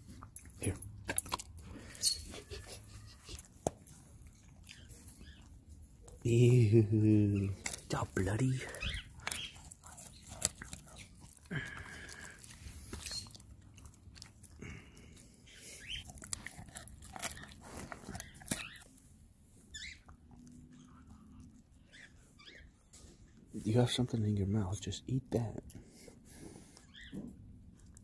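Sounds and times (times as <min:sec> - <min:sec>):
dogs chewing with wet crunches: 0:00.0 - 0:06.6, 0:07.4 - 0:22.7, 0:24.6 - 0:28.0
teeth clicking: 0:08.6 - 0:15.2.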